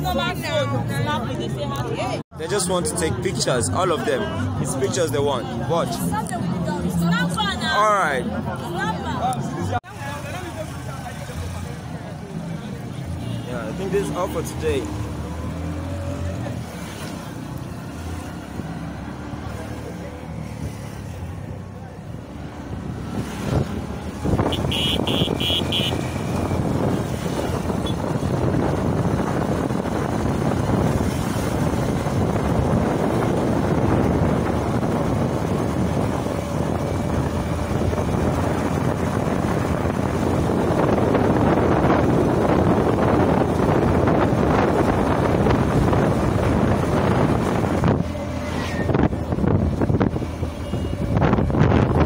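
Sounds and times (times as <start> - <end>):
wind buffeting microphone: 22.7 - 52.0.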